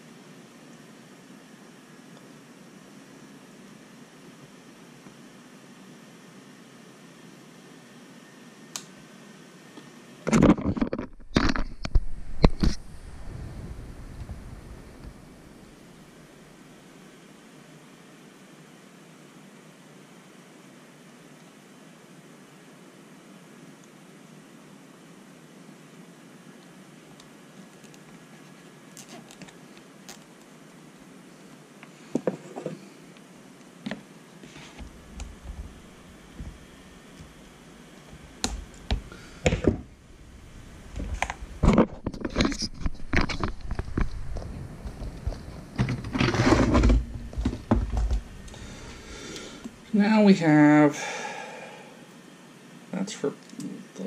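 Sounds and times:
faint steady hiss: 0.0 - 10.2, 11.6 - 54.0
camera handling rubbing and bumps: 10.3 - 12.8, 40.9 - 48.6
dull thumps: 34.8 - 37.4, 43.1 - 48.6.

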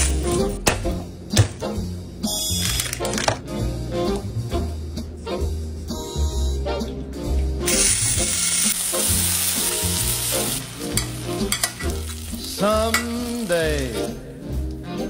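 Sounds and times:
meat sizzling in butter: 7.7 - 14.1
spoon clicking and scraping: 11.0 - 12.2.

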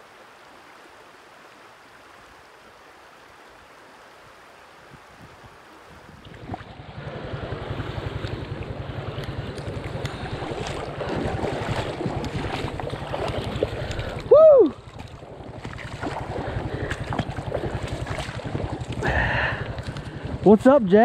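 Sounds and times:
stream water splashing: 0.0 - 21.0
wind rumbling on microphone: 3.6 - 20.9
loud cry: 14.3 - 14.8.

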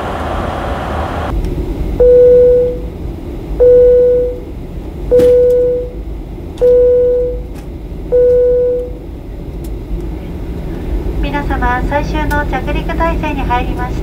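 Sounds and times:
jet cabin drone: 0.0 - 14.0
electronic chime dings: 5.1 - 6.0, 6.7 - 7.4.

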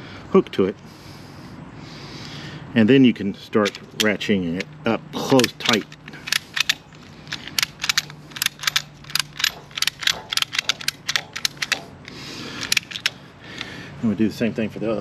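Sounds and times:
ratchet strap clicking: 3.6 - 13.7
ratchet rasp: 5.4 - 11.9.

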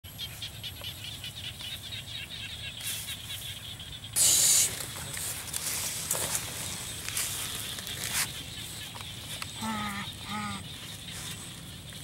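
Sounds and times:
rapid chirping: 0.2 - 5.1.

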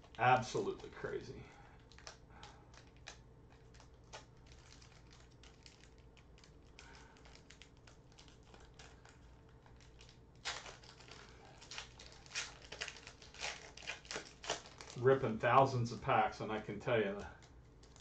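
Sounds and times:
foil pack crinkling torn open: 1.8 - 15.4, 17.4 - 18.0.

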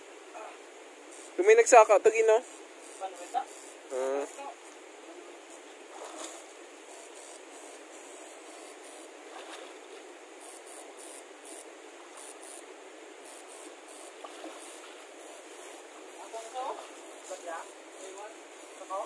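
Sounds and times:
stream water splashing: 4.7 - 19.0.

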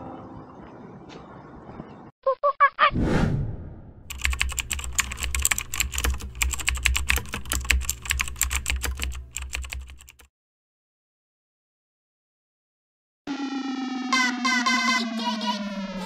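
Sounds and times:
rapid keyboard typing: 4.1 - 10.3.

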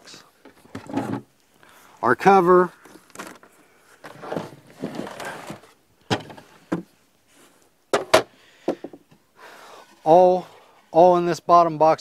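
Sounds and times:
wood scraping: 2.8 - 9.0, 9.6 - 11.2.

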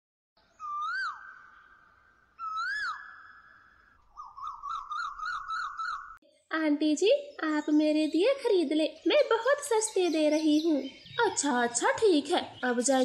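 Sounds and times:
warbling whistles: 0.6 - 6.2.

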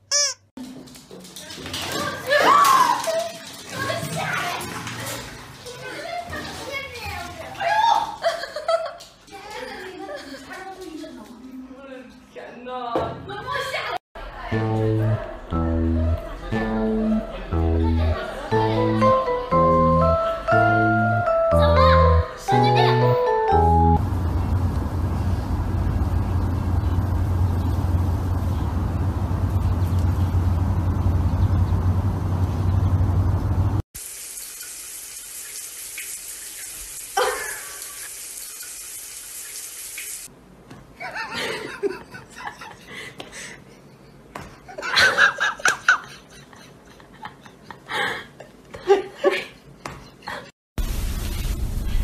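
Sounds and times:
voices and laughter: 7.7 - 11.0
low rumbling noise: 23.8 - 33.8.

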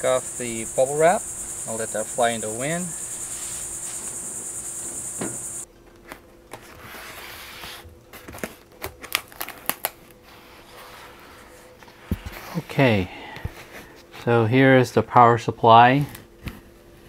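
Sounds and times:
high-pitched insect chorus: 0.0 - 5.7
plastic crinkling: 8.2 - 10.1.

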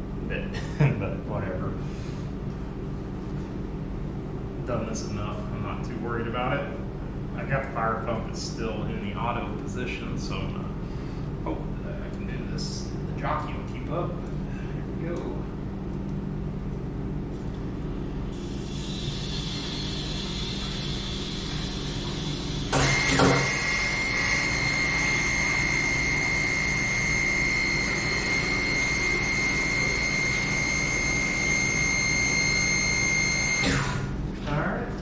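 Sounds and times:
low steady hum: 0.0 - 35.0
water hissing through valve: 18.3 - 23.1
steady high whistle: 18.5 - 34.0.

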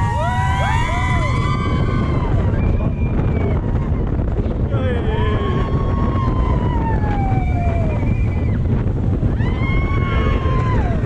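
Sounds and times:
riders screaming: 0.0 - 11.0
wind buffeting microphone: 0.0 - 11.0.

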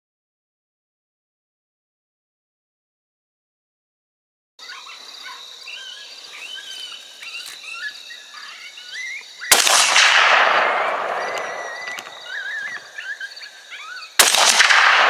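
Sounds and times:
birds singing: 4.6 - 15.0
rifle shot: 9.5 - 13.0, 14.2 - 15.0.

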